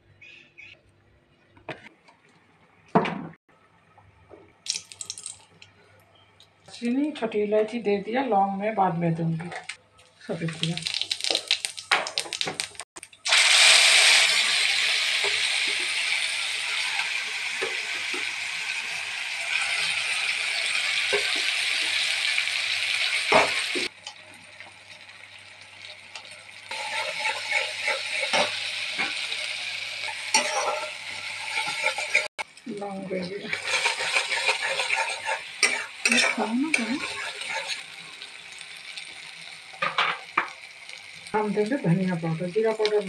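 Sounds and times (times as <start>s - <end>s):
paste sizzling in hot oil: 10.4s - 43.0s
metal spatula scraping a pan: 26.7s - 32.4s, 33.2s - 37.9s.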